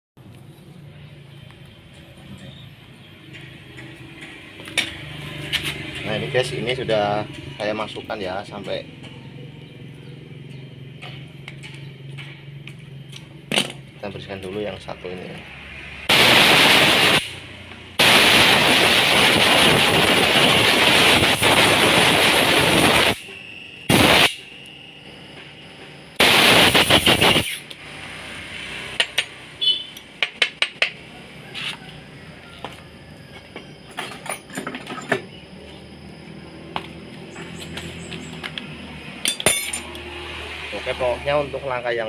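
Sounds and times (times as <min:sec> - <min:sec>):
pressurized air blasts hissing: 0:16.1 - 0:24.6, 0:26.2 - 0:28.3.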